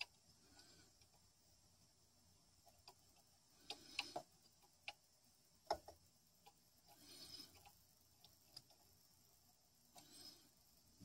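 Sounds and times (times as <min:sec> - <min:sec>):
small clicks and taps: 0:02.6 - 0:06.6, 0:07.5 - 0:08.8.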